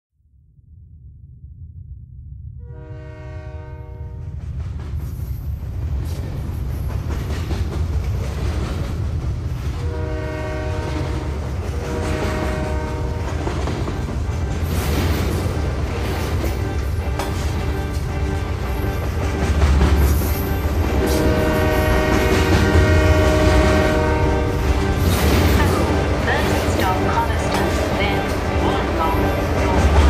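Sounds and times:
train rumbling: 2.4 - 30.0
train horn blasts: 2.6 - 4.4, 9.8 - 15.0, 15.6 - 30.0.

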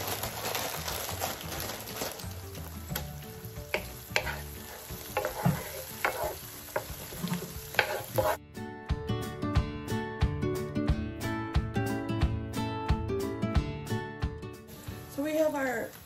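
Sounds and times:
onions sizzling in oil: 0.0 - 8.4, 14.7 - 16.0
music: 0.0 - 16.0
wooden spoon scraping a pan: 3.7 - 8.4.

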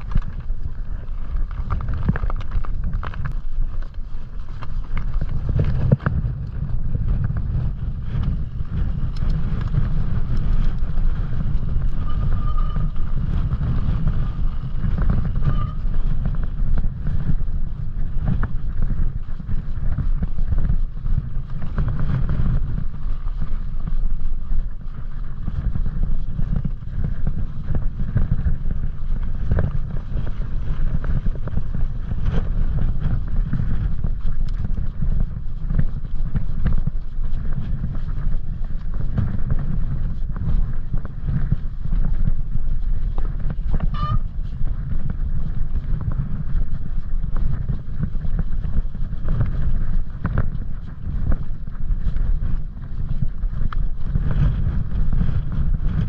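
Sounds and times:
bike tyres rattling and clicking: 0.0 - 56.0
wind buffeting microphone: 0.0 - 56.0.

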